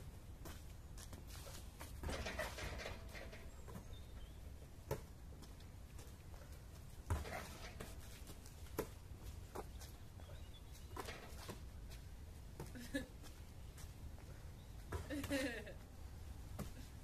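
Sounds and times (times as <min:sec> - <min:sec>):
basketball thudding on asphalt: 0:04.8 - 0:05.4, 0:07.1 - 0:09.7.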